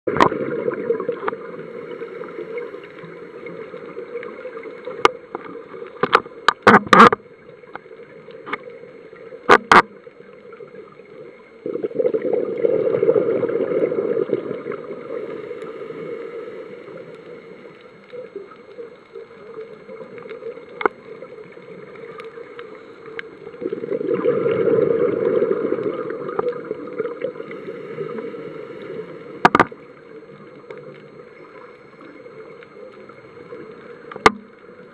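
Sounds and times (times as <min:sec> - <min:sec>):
exhaled bubbles rushing: 0:00.1 - 0:01.6, 0:11.6 - 0:16.4, 0:23.5 - 0:29.5
underwater hiss: 0:00.4 - 0:05.0, 0:11.6 - 0:30.7.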